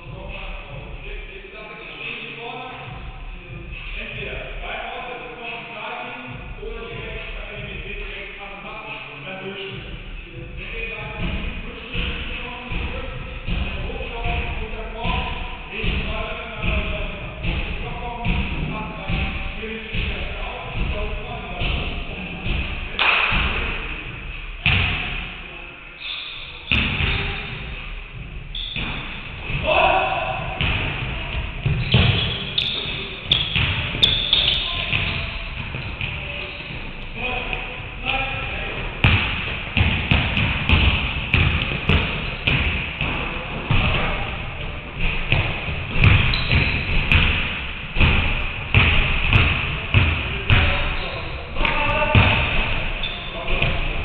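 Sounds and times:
basketballs striking hardwood floor: 24.6 - 25.1, 26.7 - 44.2, 44.9 - 50.9, 51.5 - 54.0.

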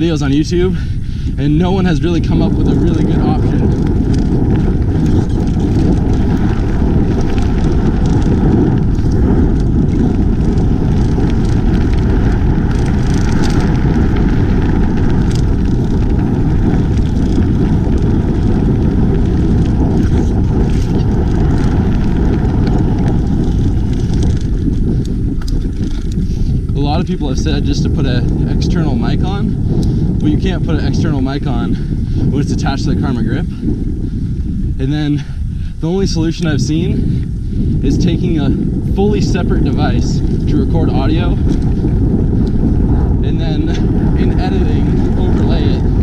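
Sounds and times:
bike rolling over dirt: 0.0 - 0.8, 1.4 - 46.0
wind buffeting microphone: 0.0 - 46.0.

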